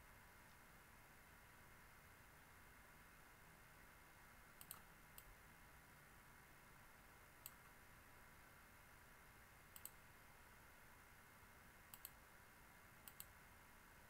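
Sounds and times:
low steady hiss: 0.0 - 14.0.

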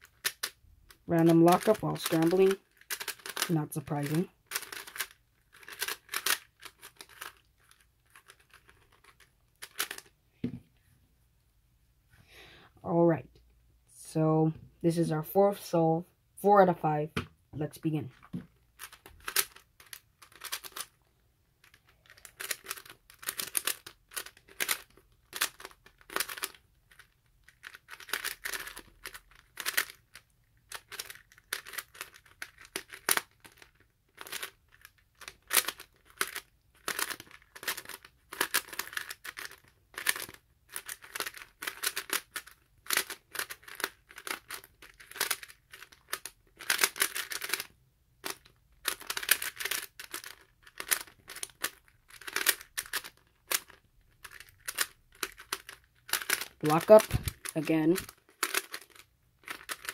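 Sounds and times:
plastic puzzle cube clicking: 0.0 - 10.1, 18.2 - 21.0, 21.6 - 59.9.

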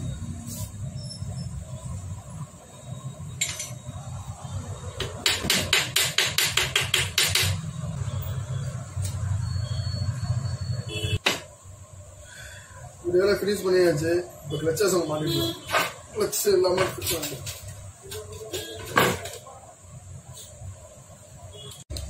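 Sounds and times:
sharp metallic taps: 5.0 - 7.6.

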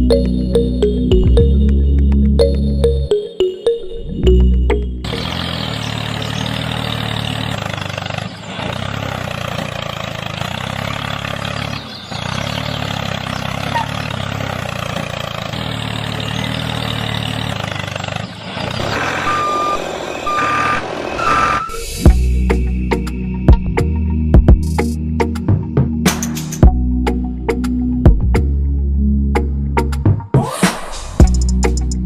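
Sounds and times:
vehicle engine running: 0.0 - 30.3, 31.2 - 32.0.

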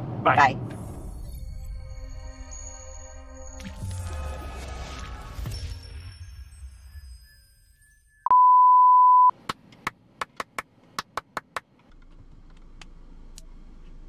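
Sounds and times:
steady beep tone: 5.8 - 9.3.

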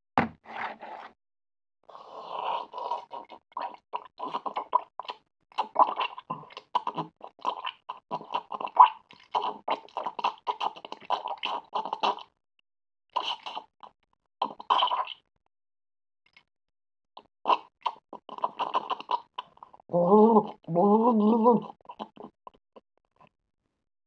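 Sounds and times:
cartoon squelching noises: 13.2 - 13.7, 14.4 - 15.2, 17.5 - 22.6.

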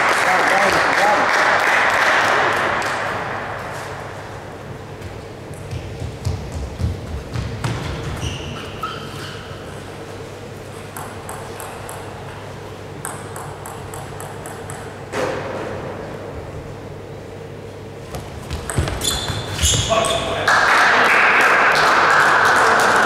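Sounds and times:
table tennis ball clicking: 13.0 - 15.0.

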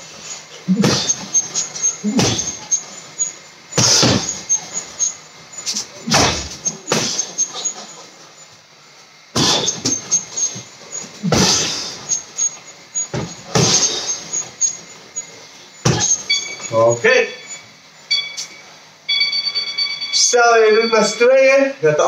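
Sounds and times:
punches thudding on heavy bag: 0.7 - 1.4, 2.0 - 2.7, 3.8 - 4.6, 6.0 - 7.4, 9.4 - 10.2, 11.2 - 12.1, 13.1 - 14.3, 15.8 - 16.3.

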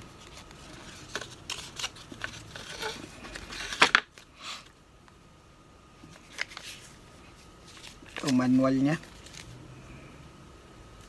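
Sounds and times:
paper rustling: 0.0 - 4.2, 6.0 - 9.5.

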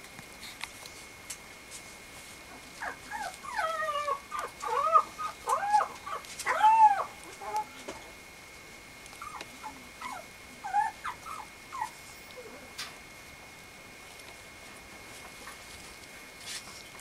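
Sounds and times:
puppy whining and yipping: 2.8 - 7.8, 9.2 - 12.6.

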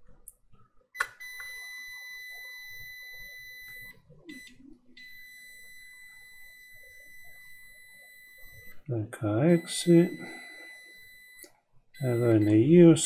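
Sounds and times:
multimeter continuity beep: 1.0 - 13.0.

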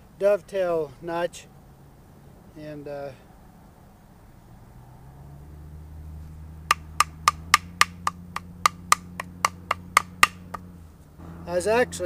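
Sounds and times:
wooden mallet knocking on chisel: 6.7 - 10.6.

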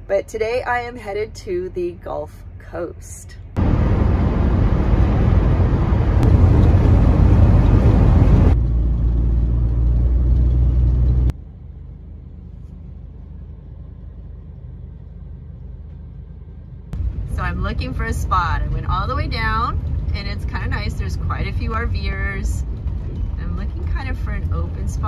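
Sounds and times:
tyre and wind road noise: 3.6 - 11.4, 14.6 - 25.0.

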